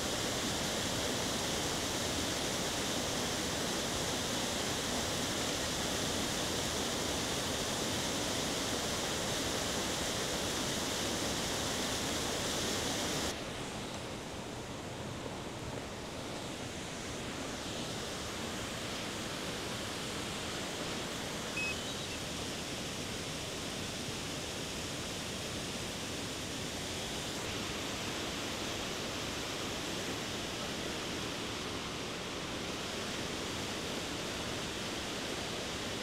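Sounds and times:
waterfall roaring: 0.1 - 36.0
faint high chirp: 21.5 - 22.3.

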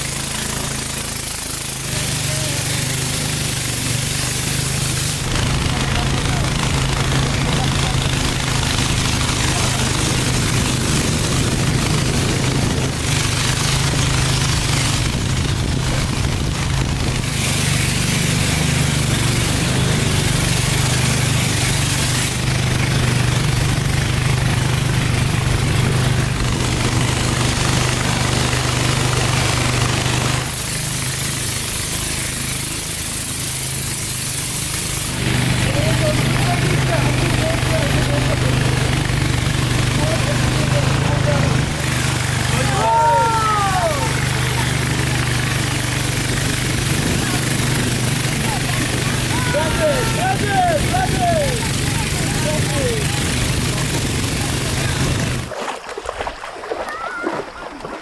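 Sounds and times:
hiss of water spray: 0.0 - 39.1
boat engine running: 0.0 - 58.0.

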